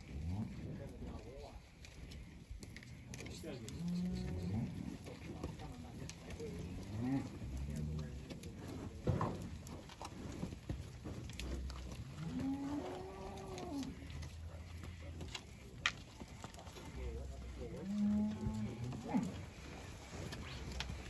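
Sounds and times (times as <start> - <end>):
cows mooing: 3.3 - 5.4, 6.4 - 8.2, 11.4 - 15.5, 16.6 - 21.0.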